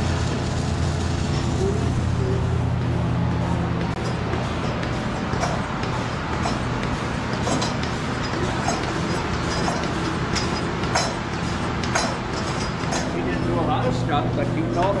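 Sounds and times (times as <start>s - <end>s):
milking machine hum and hiss: 0.0s - 15.0s
milking machine sharp clicks: 3.8s - 13.9s.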